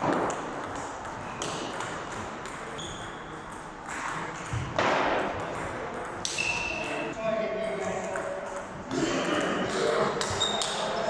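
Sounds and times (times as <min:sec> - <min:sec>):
shoe squeaks on wooden floor: 0:02.8 - 0:03.3.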